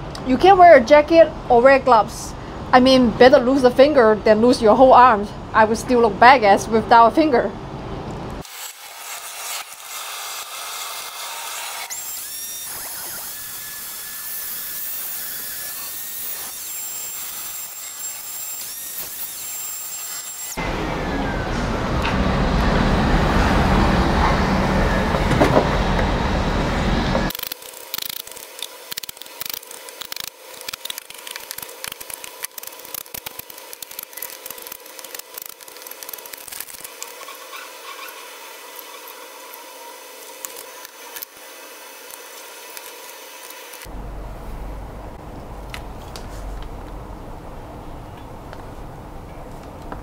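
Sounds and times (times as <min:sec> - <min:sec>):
saw cutting metal: 0:08.4 - 0:22.4, 0:27.2 - 0:43.9
miter saw whining: 0:08.4 - 0:44.0
hand file on metal bar: 0:37.0 - 0:39.7.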